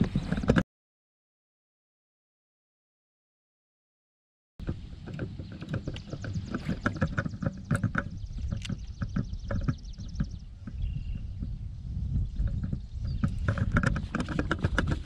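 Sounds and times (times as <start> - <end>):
low wind rumble: 4.6 - 15.0.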